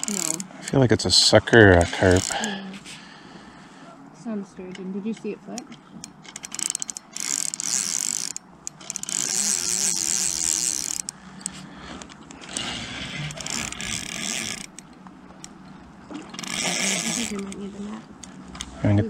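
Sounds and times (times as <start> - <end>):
spinning reel being cranked: 0.0 - 0.8, 1.6 - 2.6, 5.6 - 11.6, 12.3 - 18.7.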